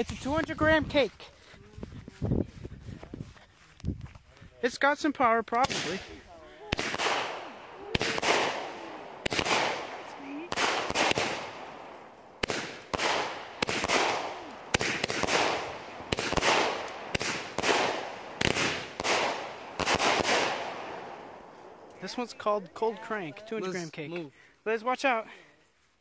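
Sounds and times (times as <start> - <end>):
firework cake bangs: 6.7 - 11.6, 12.4 - 21.0.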